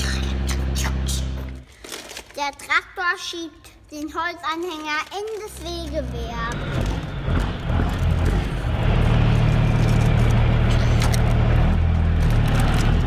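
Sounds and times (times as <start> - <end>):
tractor engine droning: 5.8 - 13.0.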